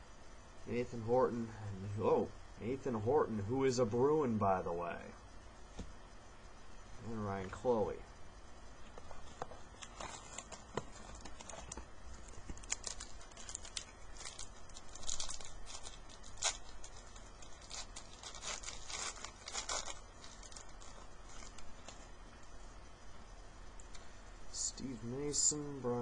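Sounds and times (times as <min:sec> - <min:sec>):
cards rustling: 0:08.9 - 0:22.1
wrapper tearing and crinkling: 0:09.8 - 0:22.1.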